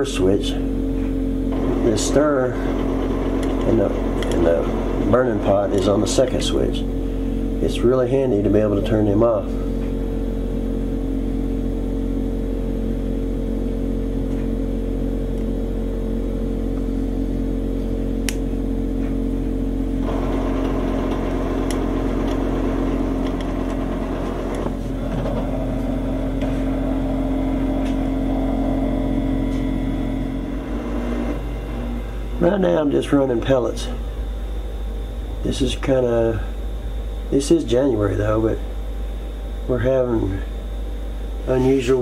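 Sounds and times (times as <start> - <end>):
motors humming: 0.0 - 42.0
rough busy mechanical noise: 1.5 - 7.0, 20.0 - 34.5
sharp clicks: 18.2 - 18.4, 21.1 - 22.4.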